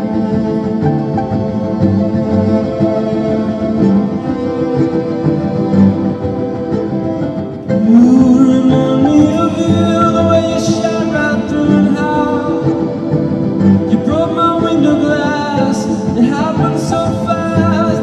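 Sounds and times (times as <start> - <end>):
sliding melody line: 0.0 - 18.0
sustained accompaniment: 0.0 - 18.0
violin: 0.0 - 18.0.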